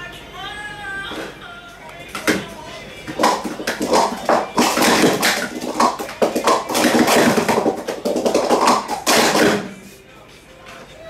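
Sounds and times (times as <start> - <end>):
plastic cups clattering: 3.1 - 9.8.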